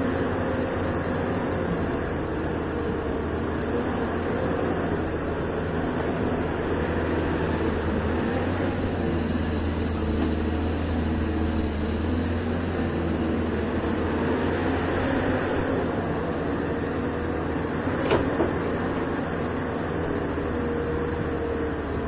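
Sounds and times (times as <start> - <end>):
excavator diesel engine humming: 0.0 - 22.0.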